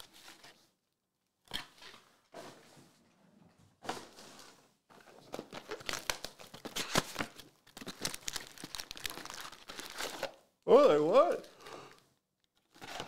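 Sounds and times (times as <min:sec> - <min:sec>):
foil wrapper crinkling and tearing: 0:05.6 - 0:10.4.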